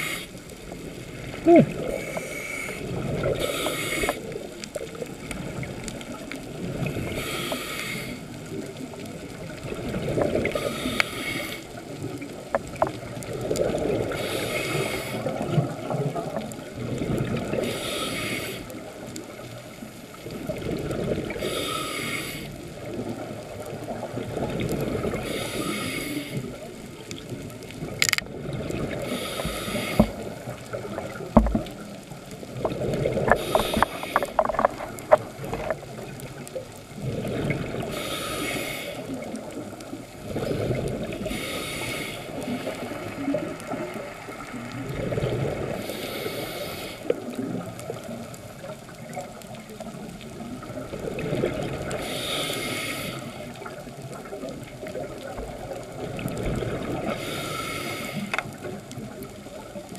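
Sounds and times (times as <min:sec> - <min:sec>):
regulator inhalation hiss: 0:00.0 - 0:00.4, 0:01.9 - 0:04.3, 0:07.1 - 0:08.3, 0:10.6 - 0:11.8, 0:14.1 - 0:15.3, 0:17.6 - 0:18.9, 0:21.4 - 0:22.6, 0:25.2 - 0:26.5, 0:29.1 - 0:30.3, 0:33.4 - 0:34.4, 0:37.9 - 0:39.2, 0:41.2 - 0:43.0, 0:45.8 - 0:47.1, 0:52.0 - 0:53.6, 0:57.2 - 0:58.4
exhaled bubbles burbling: 0:00.0 - 0:07.3, 0:08.4 - 0:11.0, 0:11.8 - 0:17.6, 0:20.2 - 0:21.6, 0:26.4 - 0:38.0, 0:39.0 - 0:41.4, 0:42.4 - 0:45.9, 0:47.1 - 0:52.0, 0:53.5 - 0:57.3
sharp clicks: 0:28.0 - 0:28.3.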